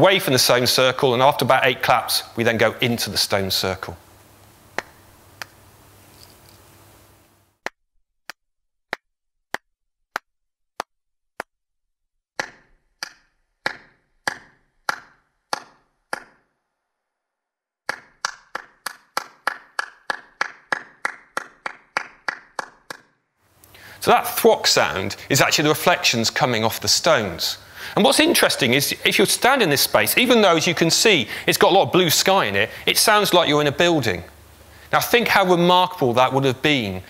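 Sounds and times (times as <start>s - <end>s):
hand claps over loudspeakers: 12.4s - 16.4s, 17.9s - 23.1s.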